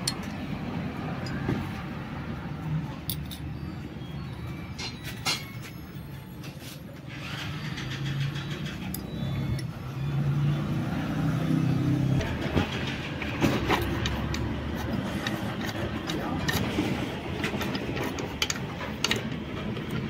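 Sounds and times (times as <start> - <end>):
vehicle engine hum: 0.0 - 20.0
metal clinks of tools: 3.0 - 3.8.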